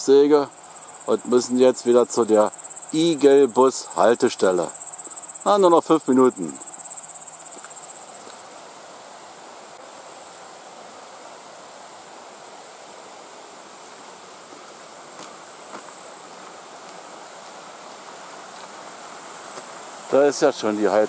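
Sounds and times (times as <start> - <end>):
insects chirping: 0.0 - 21.0
steady hiss: 0.0 - 21.0
faint ticks: 7.5 - 8.4.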